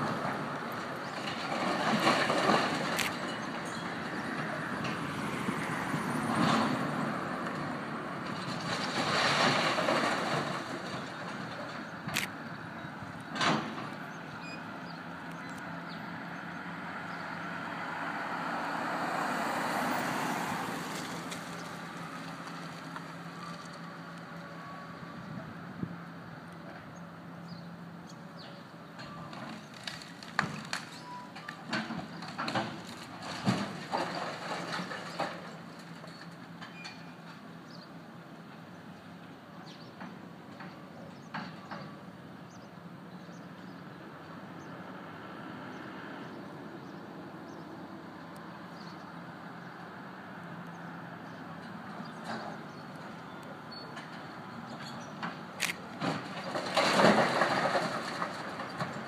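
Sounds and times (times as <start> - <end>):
masonry and timber clattering down: 8.2 - 11.8, 56.0 - 59.0
car driving past: 16.5 - 22.2.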